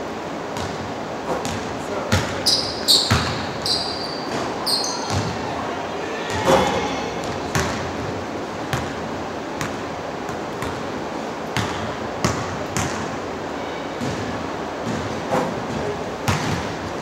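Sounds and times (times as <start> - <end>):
ball hitting hoop: 0.6 - 2.3, 3.1 - 3.4, 14.0 - 16.8
basketballs bouncing on hardwood floor: 1.4 - 4.5, 5.1 - 5.4, 7.2 - 8.1, 9.6 - 10.9, 11.6 - 13.1, 14.0 - 16.8.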